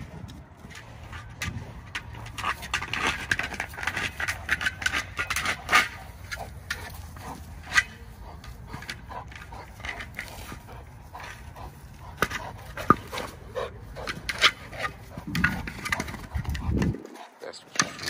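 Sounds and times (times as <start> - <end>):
paws and ball scuffing on grass: 0.0 - 17.6
dog breathing: 6.4 - 14.1.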